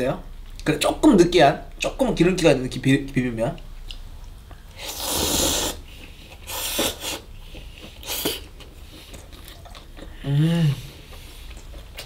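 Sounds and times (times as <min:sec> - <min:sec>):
person slurping noodles: 0:04.8 - 0:07.3, 0:07.9 - 0:08.5.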